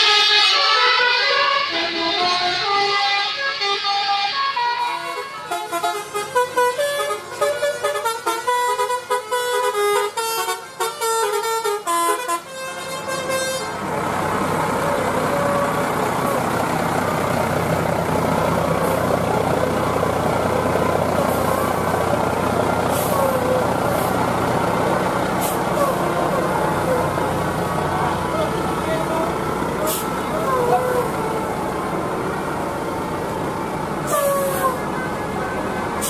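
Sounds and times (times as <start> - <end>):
musical bus air horns: 0.0 - 13.9, 15.2 - 16.5, 21.1 - 22.0, 22.8 - 24.5, 25.3 - 31.7, 34.0 - 36.0
coach engine and street noise: 0.0 - 36.0.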